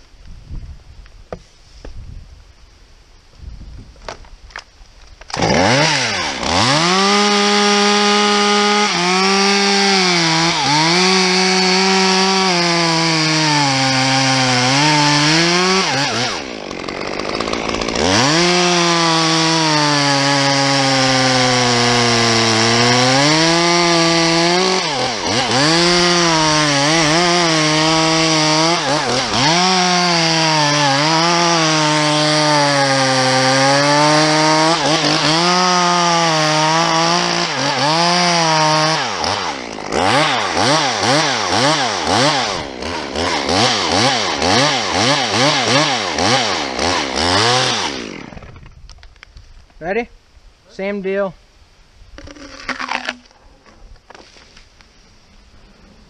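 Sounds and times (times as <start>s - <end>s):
chainsaw cutting tree trunk: 5.2s - 48.8s, 52.2s - 53.4s.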